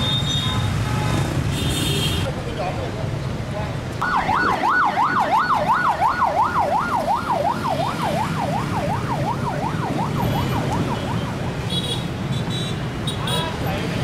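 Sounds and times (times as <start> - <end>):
street traffic rumble: 0.0 - 14.0
emergency siren yelping: 4.0 - 11.5.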